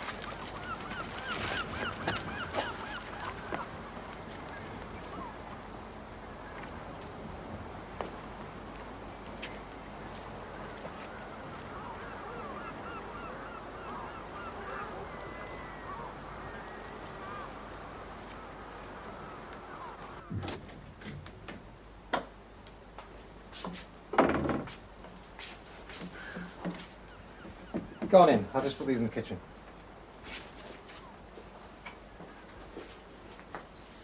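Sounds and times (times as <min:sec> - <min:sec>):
birds calling: 0:00.0 - 0:20.5, 0:25.9 - 0:33.9
steady background noise: 0:00.0 - 0:34.0
knocks and thumps: 0:24.2 - 0:24.8.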